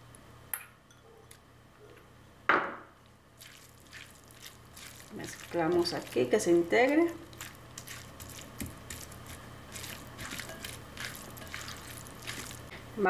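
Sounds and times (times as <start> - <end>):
low steady hum: 0.0 - 13.0
spatula squishing wet salad: 3.4 - 12.7.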